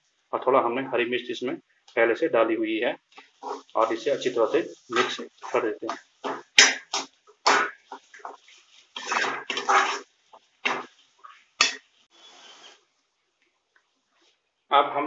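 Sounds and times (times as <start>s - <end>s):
metal spatula scraping a pan: 3.2s - 12.8s.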